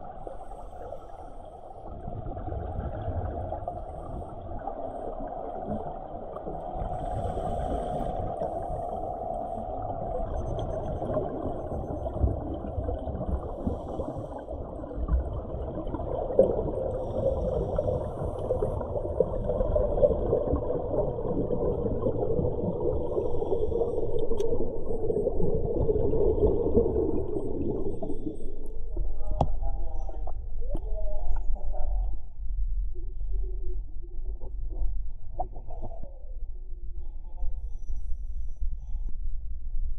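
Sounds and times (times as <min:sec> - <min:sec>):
underwater bubbling of exhaled air: 0:00.0 - 0:32.1.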